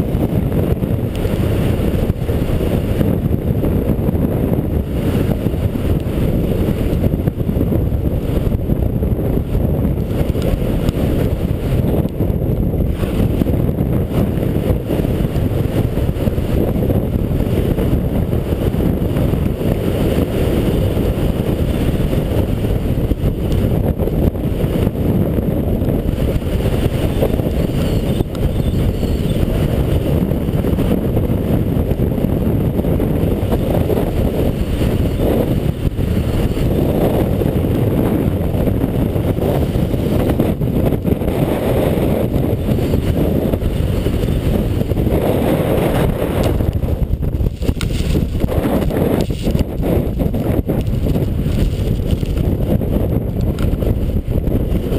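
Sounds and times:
wind rumbling on camera: 0.0 - 54.9
skis sliding on snow: 47.4 - 52.4.

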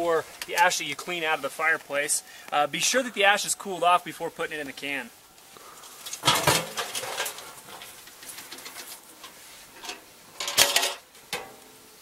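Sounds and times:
metal can clanking and scraping: 6.1 - 11.6.

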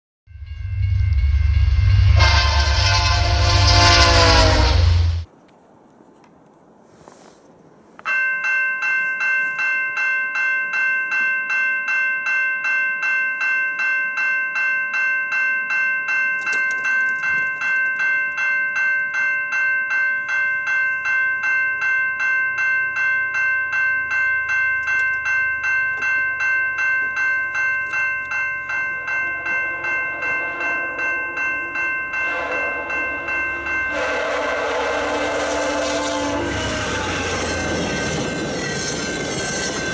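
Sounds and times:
low train rumble: 0.3 - 5.3, 22.5 - 39.9
locomotive horn: 1.6 - 5.3, 29.8 - 31.4, 32.2 - 39.9
level crossing bell ringing: 8.1 - 39.9.

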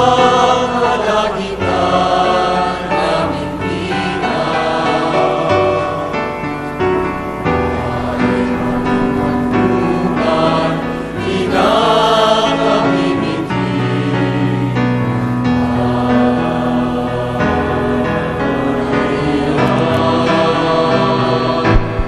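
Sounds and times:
choir singing sustained chords: 0.0 - 22.0.

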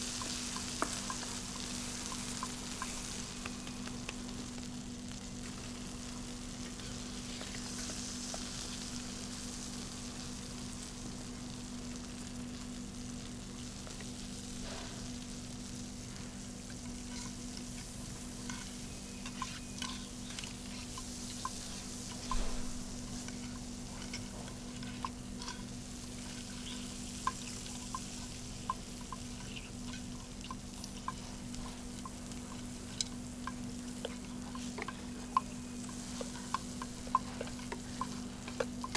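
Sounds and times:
steady low hum: 0.0 - 38.9
vegetables sizzling in pan: 0.0 - 38.9
metal spoon scraping and tapping pan: 16.7 - 38.9.

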